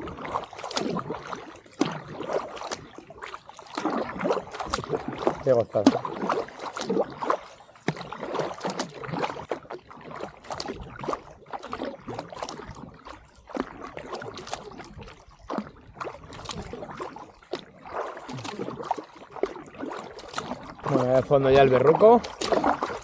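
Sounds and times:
paddle splashing into water: 0:00.0 - 0:23.0
water trickling and dripping: 0:00.0 - 0:23.0.

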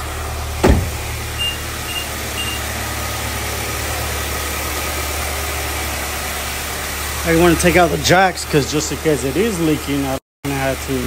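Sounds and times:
car engine idling: 0:00.0 - 0:10.1
loud thump: 0:00.6 - 0:01.1
short high beeps: 0:01.4 - 0:02.6.

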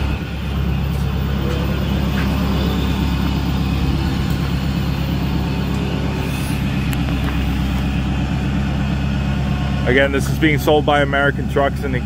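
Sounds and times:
diesel truck engine running: 0:00.0 - 0:12.0.

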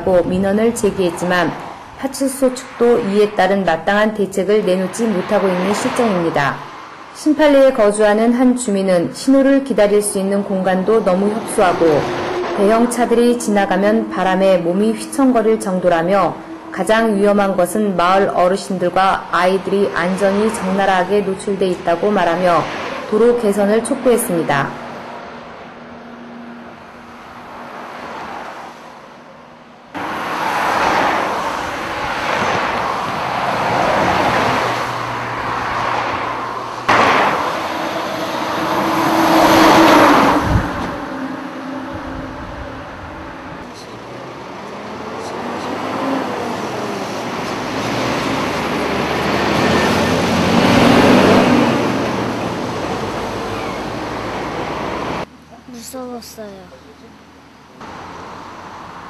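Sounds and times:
cars passing by: 0:00.0 - 0:59.0.

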